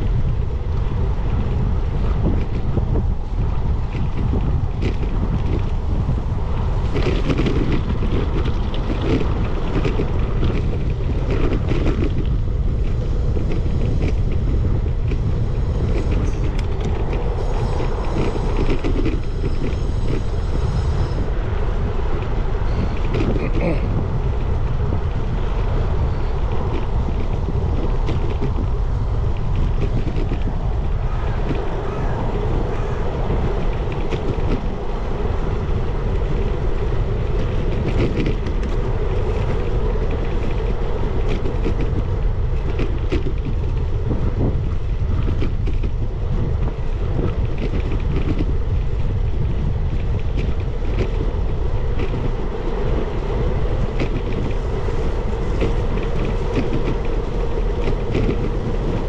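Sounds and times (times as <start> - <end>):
rumble of bicycle tyres: 0.0 - 59.0
wind buffeting microphone: 0.0 - 59.0.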